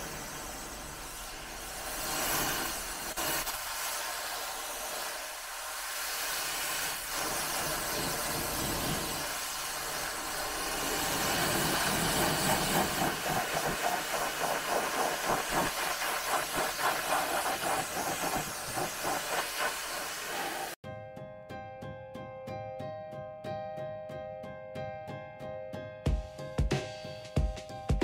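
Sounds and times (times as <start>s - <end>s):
pressure washer spraying water: 0.0s - 20.8s.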